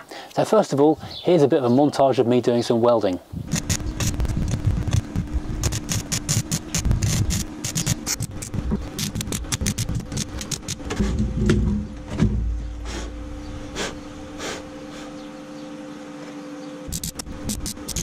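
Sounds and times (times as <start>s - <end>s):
steady hum: 3.2s - 18.0s
electric welding crackling: 3.4s - 11.0s, 16.9s - 18.0s.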